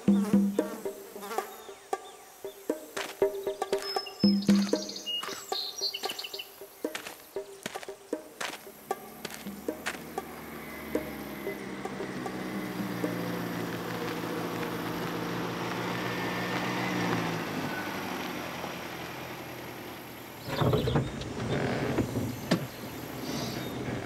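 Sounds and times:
old car engine running: 8.4s - 24.0s.

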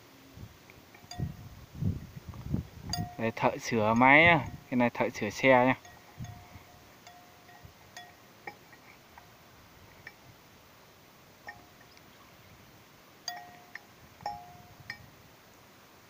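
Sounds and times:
wrench clinking on metal: 2.9s - 9.3s, 11.4s - 11.9s, 13.3s - 15.1s.

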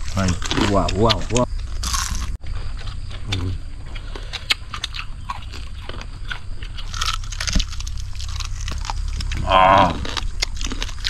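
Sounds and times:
crunching and chewing: 0.0s - 11.0s
short vocal sound: 9.3s - 10.1s.

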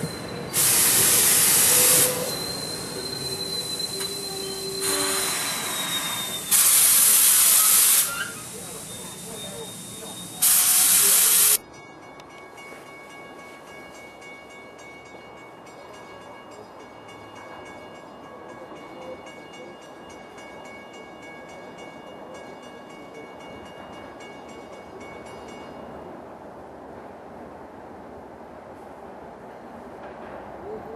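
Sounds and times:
distant train rumble: 0.0s - 30.9s.

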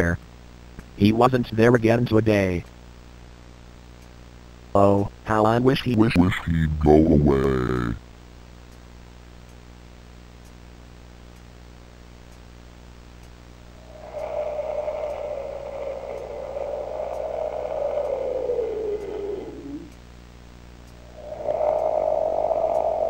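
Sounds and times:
faint clock ticking: 10.4s - 11.6s, 12.2s - 20.1s
low hum: 13.6s - 23.0s
long droning tone: 13.8s - 20.0s, 21.0s - 23.0s.

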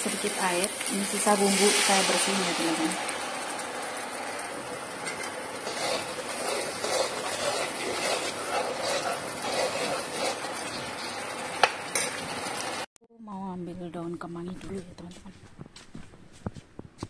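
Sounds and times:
paste sizzling in a frying pan: 0.0s - 12.9s
metal spoon scraping a pan: 5.0s - 11.3s.

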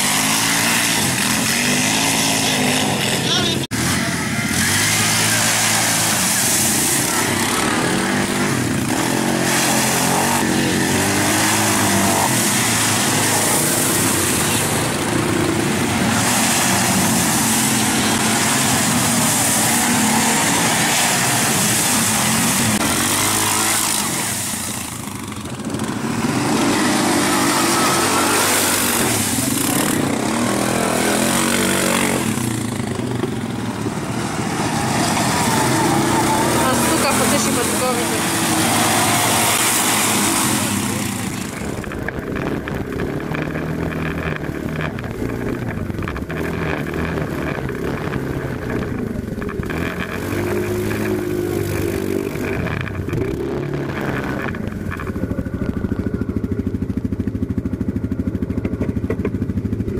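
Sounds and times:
atv engines revving: 0.0s - 59.9s
splashing through water: 4.4s - 48.3s.

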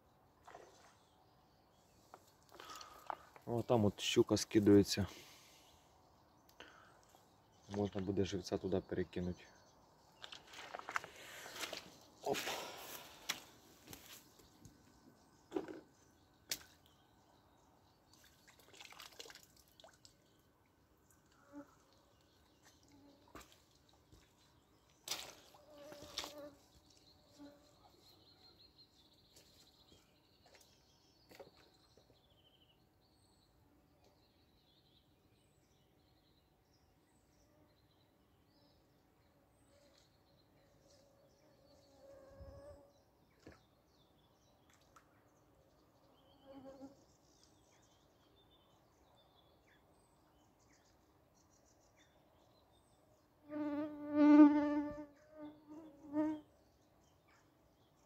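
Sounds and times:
faint bird chirps: 25.2s - 53.0s.

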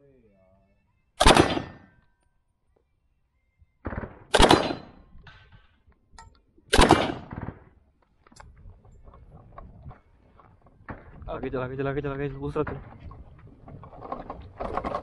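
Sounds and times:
gunshots: 1.2s - 1.9s, 3.8s - 5.0s, 6.7s - 7.8s.

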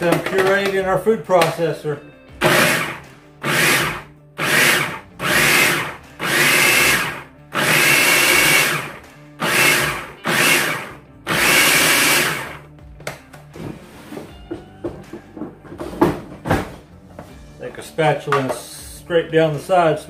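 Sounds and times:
food processor pulsing: 2.4s - 12.6s.

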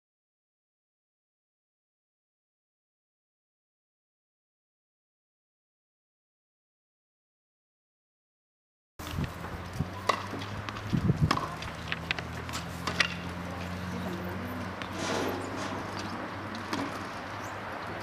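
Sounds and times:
tennis ball pops: 10.0s - 13.3s.

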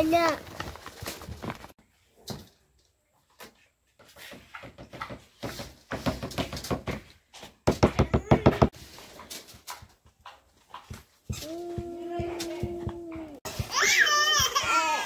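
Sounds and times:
small child crying: 8.0s - 8.7s, 11.4s - 15.0s.

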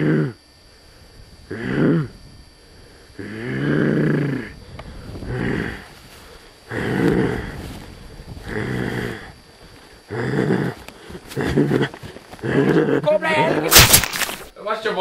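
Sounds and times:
person groaning breaths: 0.0s - 0.4s, 1.5s - 13.0s.

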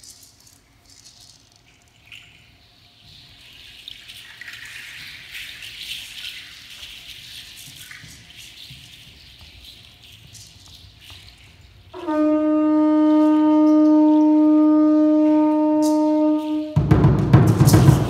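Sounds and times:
rattles shaking: 0.0s - 9.0s, 15.8s - 18.0s.

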